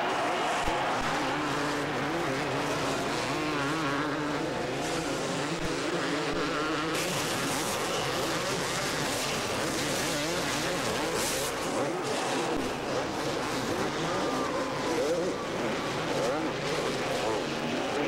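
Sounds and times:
motocross bike engines revving: 0.0 - 18.0.

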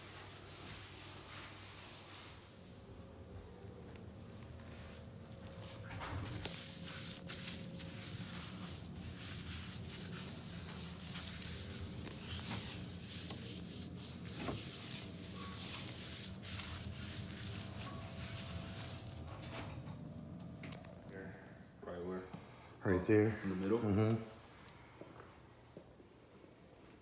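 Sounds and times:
rag rubbing on floor tiles: 6.3 - 19.3.

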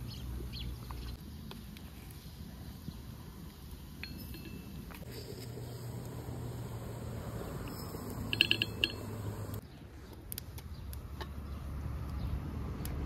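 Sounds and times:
kitchenware clinking: 7.6 - 9.5.

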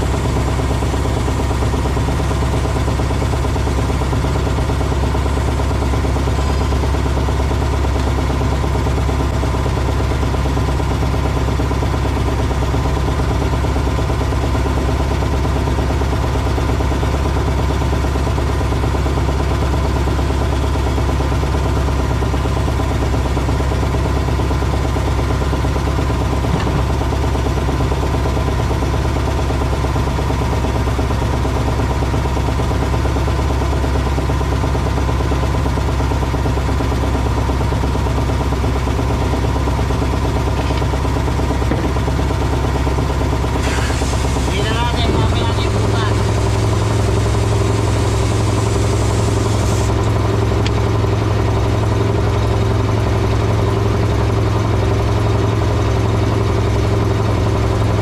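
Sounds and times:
machinery humming: 40.4 - 51.8.

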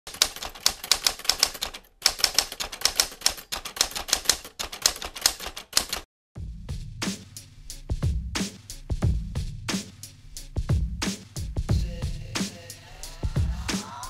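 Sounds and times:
typewriter key clacks: 0.1 - 6.0.

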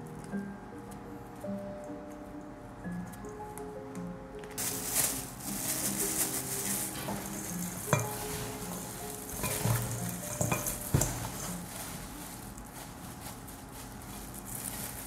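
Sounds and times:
plastic glove rustling: 4.4 - 15.0.

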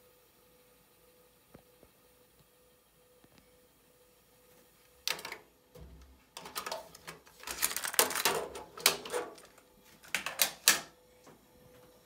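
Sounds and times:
cassette deck plastic clicks: 5.1 - 10.9.

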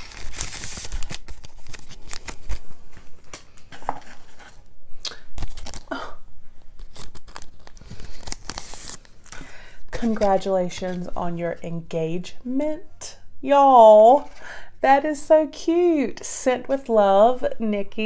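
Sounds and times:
paper tearing: 0.0 - 2.7, 6.8 - 9.1
paper rustling and crinkling: 0.0 - 4.7, 5.4 - 6.0, 6.6 - 11.2.

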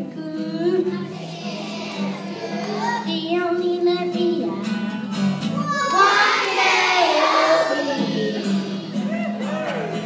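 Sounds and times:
children's choir singing: 0.9 - 3.1, 5.6 - 9.0.

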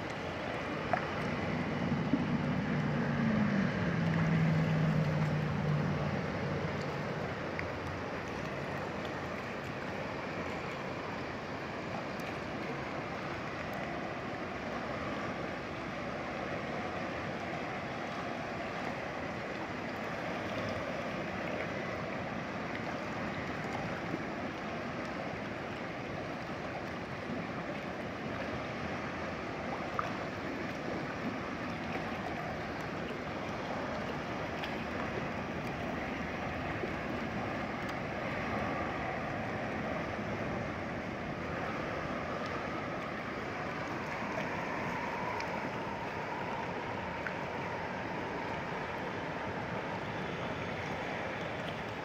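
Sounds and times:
river rushing over rocks: 0.0 - 52.0.

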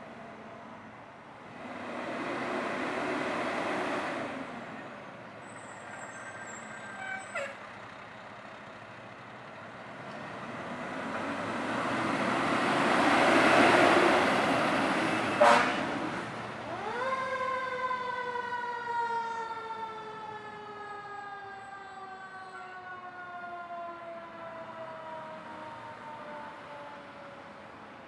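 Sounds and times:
fire truck engine: 0.0 - 28.0
truck horn blast: 15.3 - 16.0.

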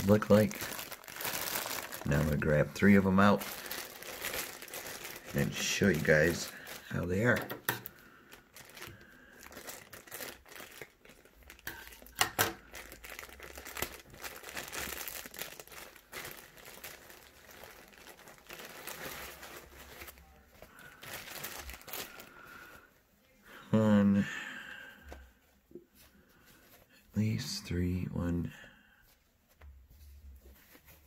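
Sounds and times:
plastic packaging crinkling: 0.0 - 22.8.

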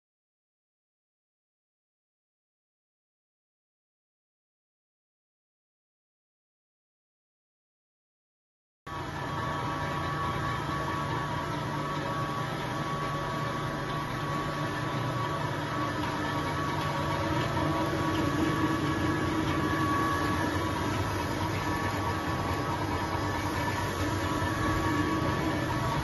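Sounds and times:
cutting machine hum: 8.9 - 26.0
machine whining tones: 8.9 - 26.0.

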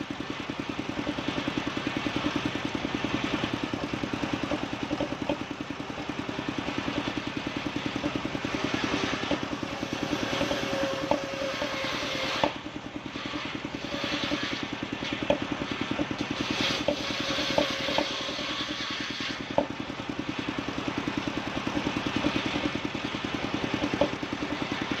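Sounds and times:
engine running pulsing: 0.0 - 25.0
saw blade hissing through wood: 8.6 - 19.6.

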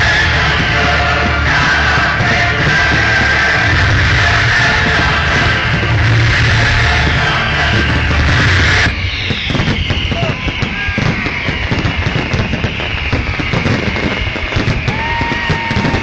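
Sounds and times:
music playing: 0.0 - 10.5
fireworks bangs and crackling: 0.0 - 16.0.

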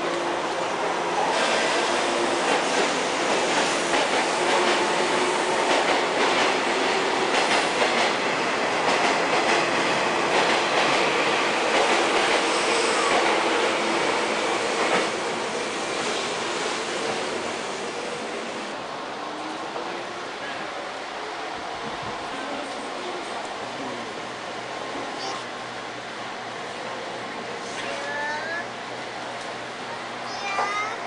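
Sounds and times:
train wheels clattering on rails: 1.3 - 17.4, 30.4 - 31.0.

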